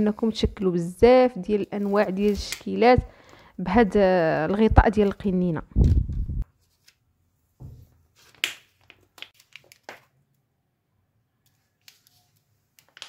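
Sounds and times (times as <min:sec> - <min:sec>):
soft thump: 0:07.6 - 0:07.9.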